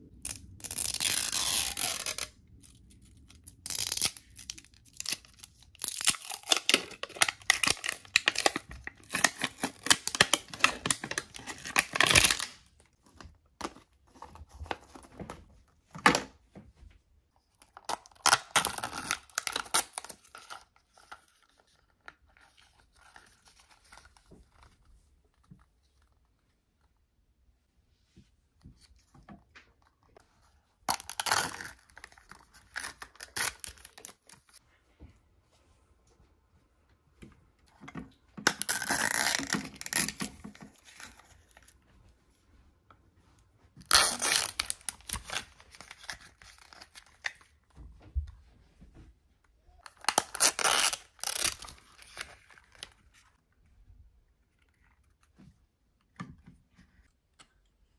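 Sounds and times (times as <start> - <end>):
plastic wrappers torn and crinkled: 0.1 - 12.8, 17.6 - 21.7, 30.9 - 34.6, 38.4 - 41.6, 43.8 - 47.5, 49.8 - 53.3.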